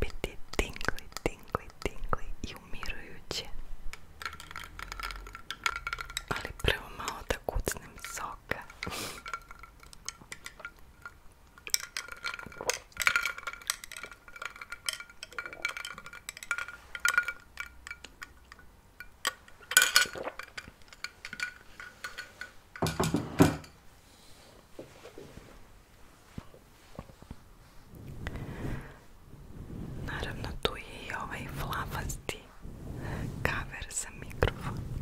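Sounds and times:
small hard objects clinking: 3.9s - 6.7s, 7.9s - 22.9s.

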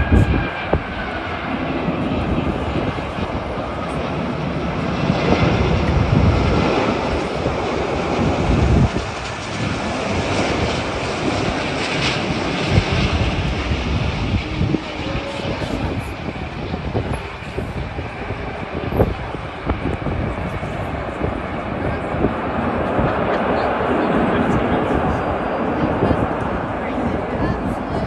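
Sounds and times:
jet airliner passing close: 0.0s - 28.0s.

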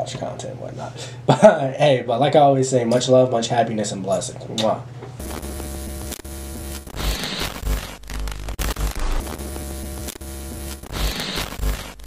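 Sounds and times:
static-like hiss: 5.2s - 12.0s.

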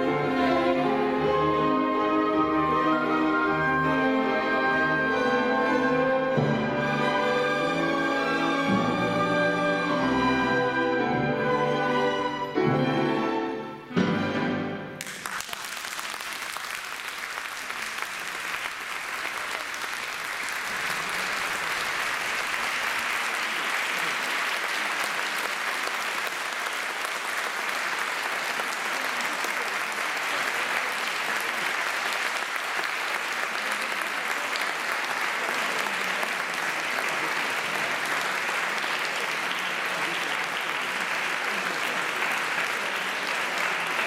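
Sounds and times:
audience applauding: 15.0s - 44.0s.

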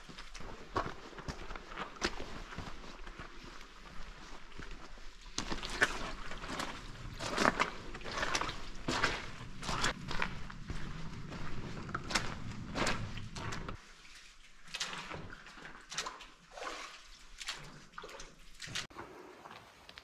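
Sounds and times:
footsteps splashing through water: 0.0s - 20.0s.

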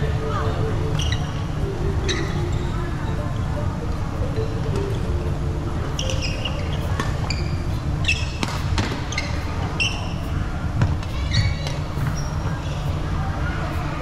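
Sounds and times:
low hall rumble: 0.0s - 14.0s
shoes squeaking on court: 5.9s - 13.0s
racket striking shuttlecock: 8.1s - 9.3s.

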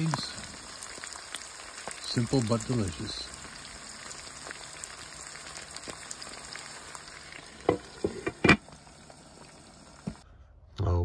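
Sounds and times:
food sizzling in a pan: 0.0s - 10.2s.

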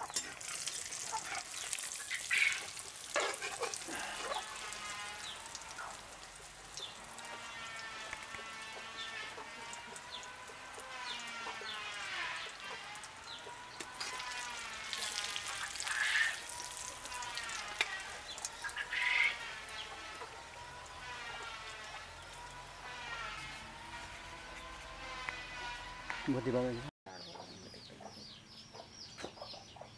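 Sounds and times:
oil popping: 0.0s - 11.2s, 12.2s - 19.2s
hot oil sizzling and crackling: 0.0s - 23.6s.

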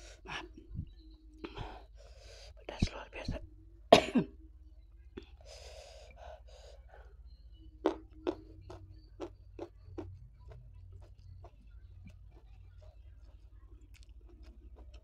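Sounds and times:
gasping breath: 5.2s - 7.2s
wet lip smacks and chewing: 7.8s - 15.0s.

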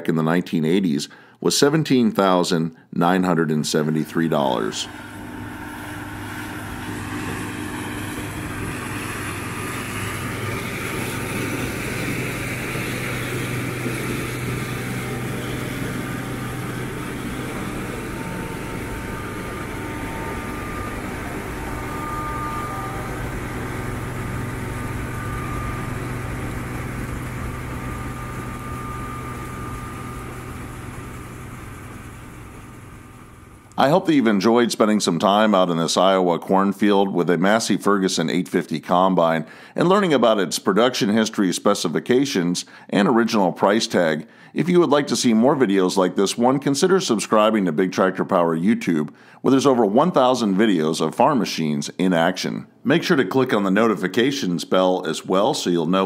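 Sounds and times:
faint high whines: 3.8s - 34.0s
combine harvester running: 4.4s - 34.0s.

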